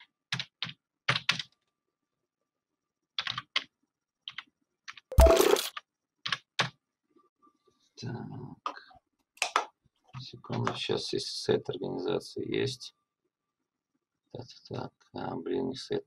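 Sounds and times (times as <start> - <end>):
computer keyboard typing: 0.3 - 1.6, 3.2 - 6.8.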